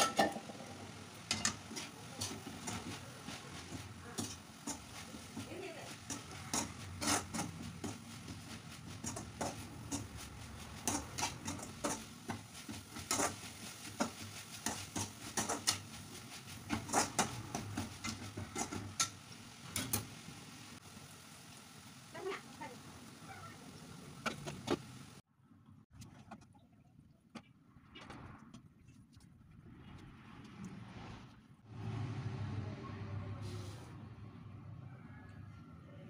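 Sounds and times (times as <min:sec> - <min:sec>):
metal spoon scraping metal pan: 0:01.2 - 0:19.2.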